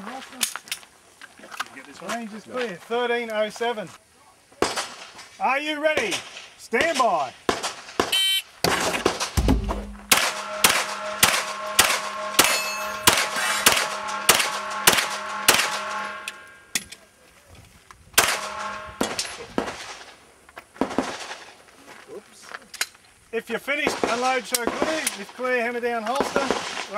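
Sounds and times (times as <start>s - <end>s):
pistol shots: 6.0s - 15.8s, 18.2s - 20.1s
steel plate targets ringing: 9.4s - 16.9s, 18.2s - 19.5s.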